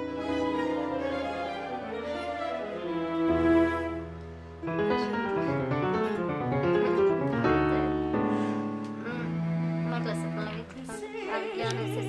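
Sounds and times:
orchestral music with piano: 0:00.0 - 0:12.0.

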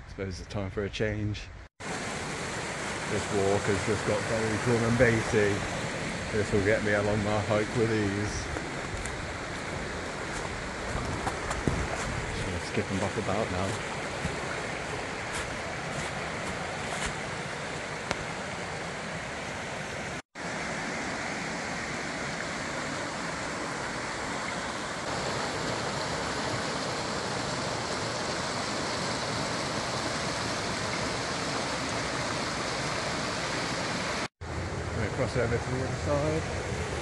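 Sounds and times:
stream rushing over rocks: 0:01.8 - 0:34.3.

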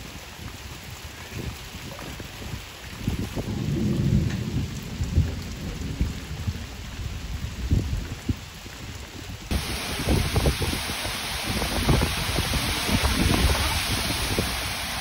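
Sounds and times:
rain falling: 0:00.0 - 0:15.0
thunder rumbling: 0:03.1 - 0:08.5, 0:09.5 - 0:15.0.

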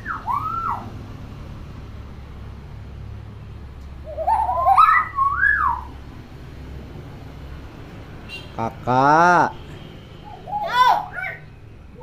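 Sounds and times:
bird warbling whistled call: 0:00.0 - 0:00.9, 0:04.0 - 0:06.0.

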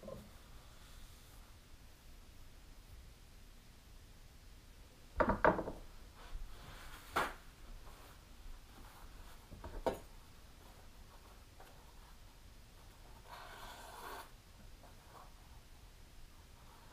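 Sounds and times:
knocks on wooden table: 0:05.2 - 0:05.8.

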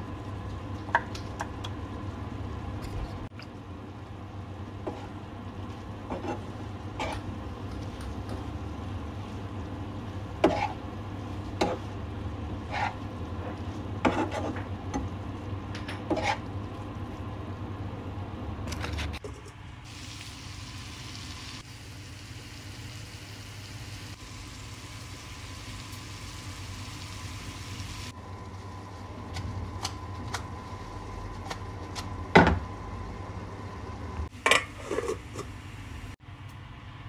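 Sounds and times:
chicken sizzling in a frying pan: 0:19.8 - 0:29.2.

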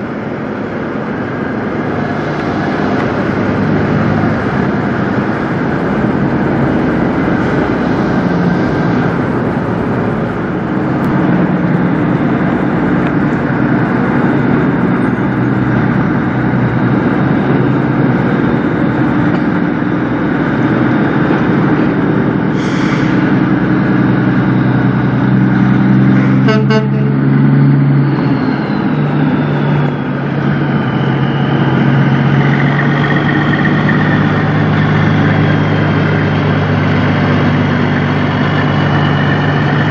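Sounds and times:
diesel truck engines rumbling: 0:00.0 - 0:39.9
short air hiss: 0:22.5 - 0:23.2.

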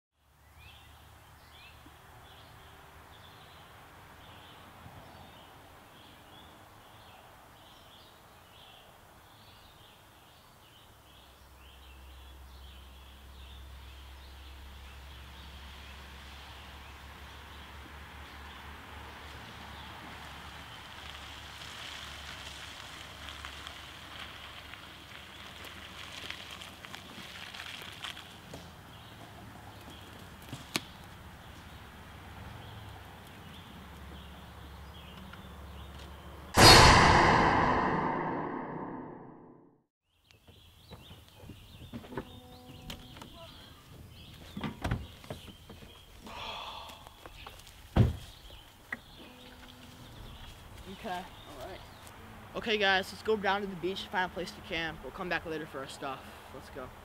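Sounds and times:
tyres rolling over wet gravel: 0:20.1 - 0:31.2.

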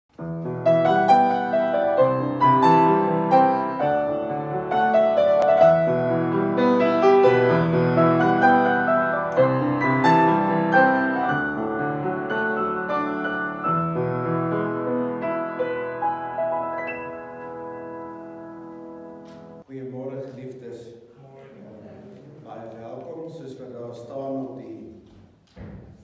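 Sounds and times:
piano notes and chords: 0:00.1 - 0:19.8.

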